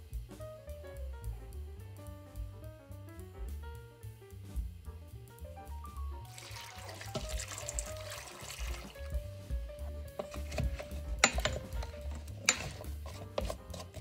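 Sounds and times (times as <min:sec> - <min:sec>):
background music: 0:00.0 - 0:14.0
water pouring into metal pot: 0:06.2 - 0:09.2
wooden spoon stirring and knocking: 0:06.3 - 0:14.0.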